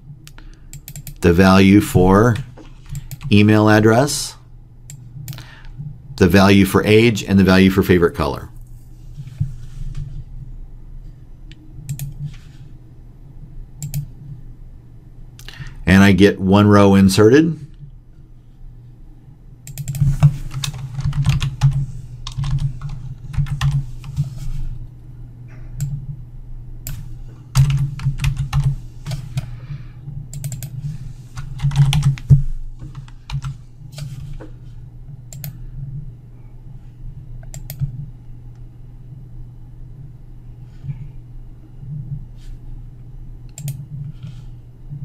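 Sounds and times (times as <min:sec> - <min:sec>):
low steady hum: 0:00.0 - 0:45.0
typing on computer keyboard: 0:00.7 - 0:01.2, 0:02.9 - 0:03.3, 0:11.9 - 0:12.2, 0:13.8 - 0:14.1, 0:19.7 - 0:23.9, 0:27.6 - 0:29.5, 0:30.4 - 0:30.8, 0:31.4 - 0:32.3, 0:32.9 - 0:33.6, 0:37.5 - 0:37.9.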